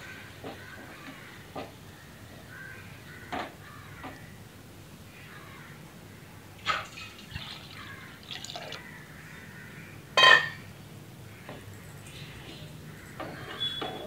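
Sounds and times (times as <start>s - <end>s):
liquid sloshing and dripping: 6.6s - 8.9s.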